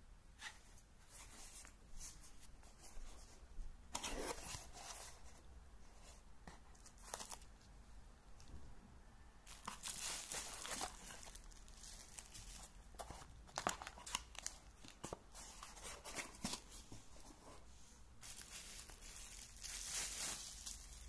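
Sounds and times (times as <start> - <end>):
cardboard and plastic wrap rustling: 9.4 - 21.0.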